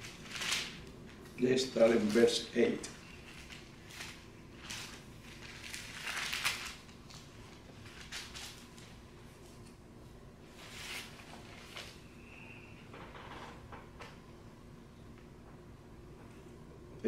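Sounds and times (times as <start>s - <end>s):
thin pages rustling: 0.0s - 2.4s, 3.1s - 9.7s, 10.6s - 12.0s.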